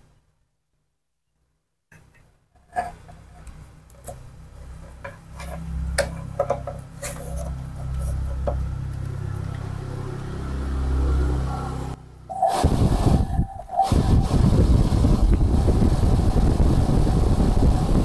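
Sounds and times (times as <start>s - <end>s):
pump motor humming: 12.3s - 18.0s.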